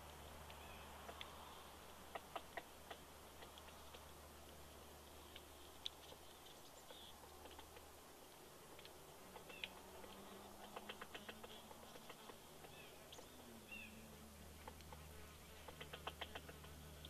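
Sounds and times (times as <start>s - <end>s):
woodpecker tapping on wood: 2.1s - 4.1s, 8.7s - 12.8s, 15.7s - 16.8s.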